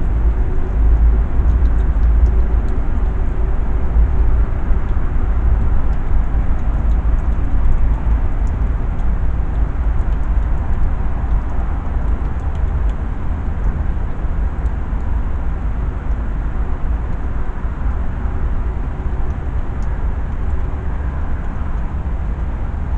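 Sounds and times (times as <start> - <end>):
low rumble: 0.0 - 22.9
faint small clicks: 1.4 - 3.1, 5.9 - 13.0.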